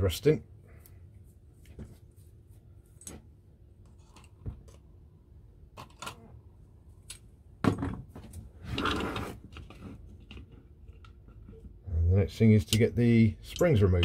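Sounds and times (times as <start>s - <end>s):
small metal parts clicking: 13.4s - 13.8s.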